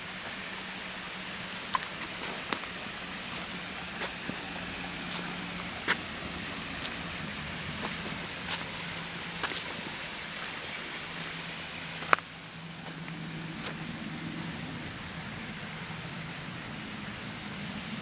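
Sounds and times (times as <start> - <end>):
stream trickling: 0.0 - 18.0
footsteps on dirt path: 3.3 - 7.1, 7.7 - 10.6, 12.8 - 13.8.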